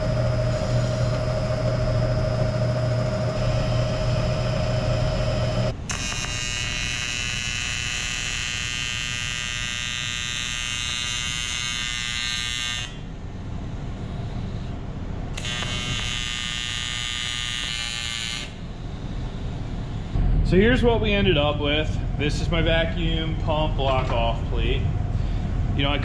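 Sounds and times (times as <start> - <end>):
milling machine humming: 0.0 - 5.9
welding arc buzzing: 0.0 - 13.1, 15.3 - 18.8.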